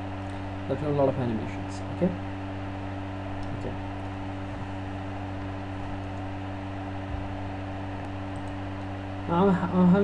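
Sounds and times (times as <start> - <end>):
low hum with hiss: 0.0 - 10.0.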